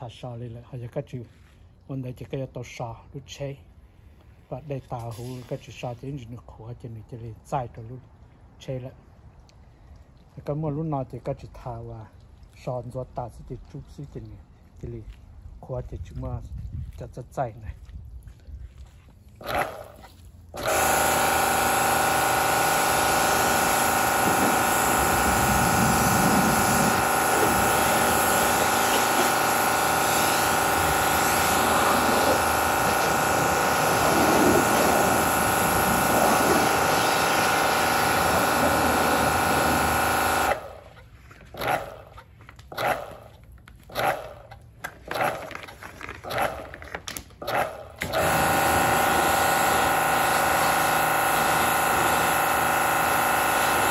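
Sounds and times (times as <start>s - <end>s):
pump starting and stopping: 19.3s - 53.9s
pressure washer spraying water: 20.6s - 40.9s, 48.0s - 53.9s.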